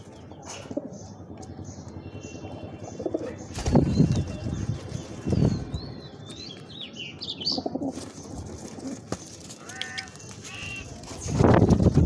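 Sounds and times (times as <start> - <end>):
small birds chirping: 0.0 - 11.6
pigeon wings flapping: 7.9 - 12.0.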